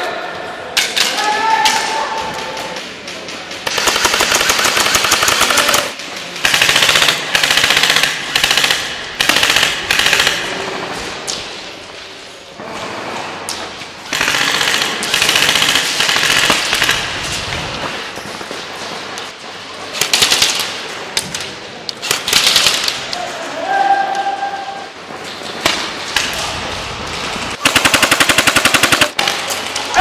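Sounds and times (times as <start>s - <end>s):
airsoft guns firing bursts: 3.6s - 10.6s, 14.1s - 17.2s, 27.6s - 29.4s.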